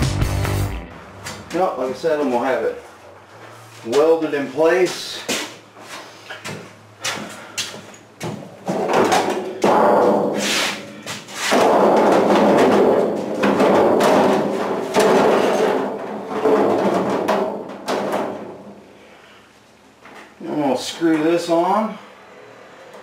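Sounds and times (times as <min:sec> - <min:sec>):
sharp knocks: 0:08.2 - 0:18.8
sheet metal scraping and rattling: 0:08.6 - 0:18.9.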